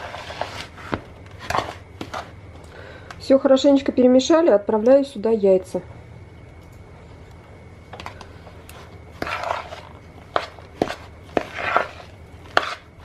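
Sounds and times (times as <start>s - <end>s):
scraping sloshing in bowl: 0.0s - 2.4s, 8.5s - 13.0s.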